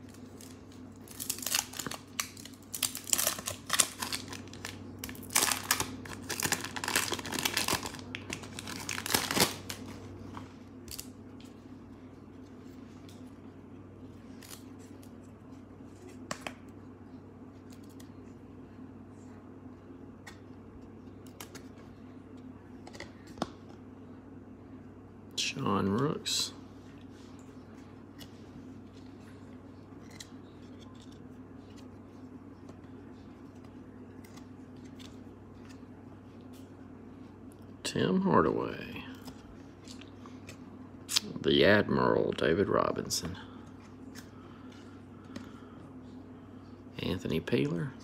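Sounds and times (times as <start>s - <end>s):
steady low hum: 0.0s - 48.0s
trading cards rustling: 0.1s - 11.1s.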